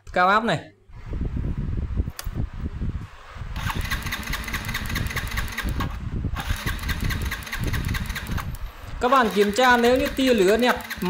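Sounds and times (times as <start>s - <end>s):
engine cranking: 3.6s - 11.0s.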